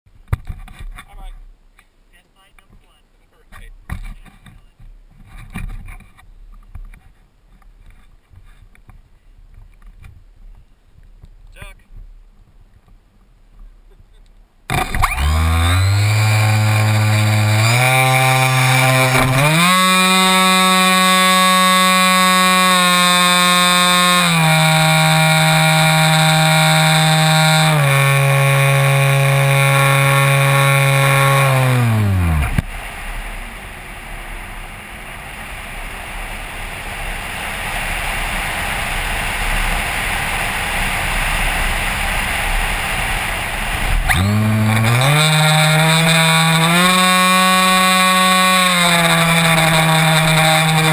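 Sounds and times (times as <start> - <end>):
electric motor and propeller whine: 14.7 - 50.9.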